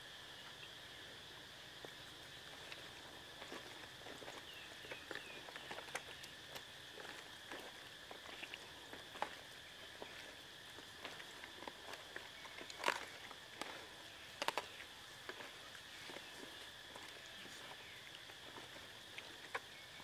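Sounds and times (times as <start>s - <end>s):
hands kneading wet intestines: 2.6s - 20.0s.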